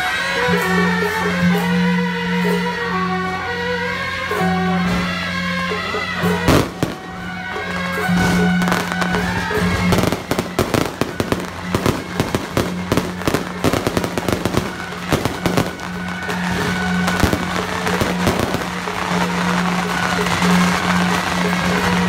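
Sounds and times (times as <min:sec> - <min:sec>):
fireworks bangs and crackles: 0:00.0 - 0:22.0
music: 0:00.0 - 0:22.0.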